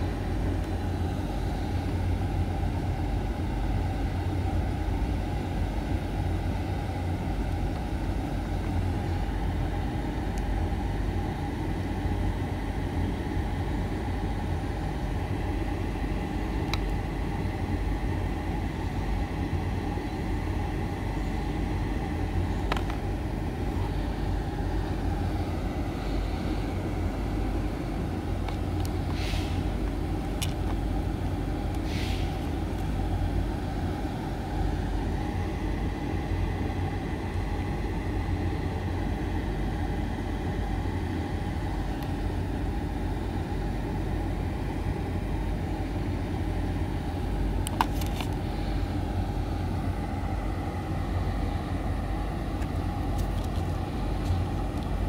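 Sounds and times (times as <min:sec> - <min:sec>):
low outdoor background rumble: 0:00.0 - 0:55.0
handling clicks and rustles: 0:22.6 - 0:24.0, 0:27.8 - 0:33.0, 0:47.6 - 0:48.5, 0:52.5 - 0:55.0.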